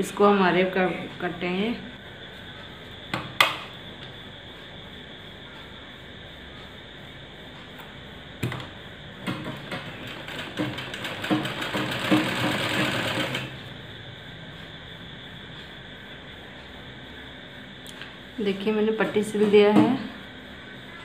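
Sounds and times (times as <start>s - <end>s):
sewing machine stitching: 9.4s - 13.5s.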